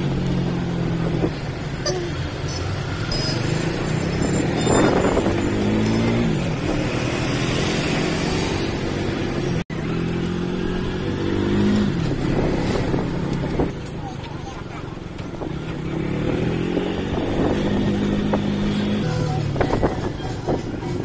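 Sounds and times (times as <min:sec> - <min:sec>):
auto rickshaw engine accelerating: 0:00.0 - 0:21.0
road noise: 0:00.0 - 0:21.0.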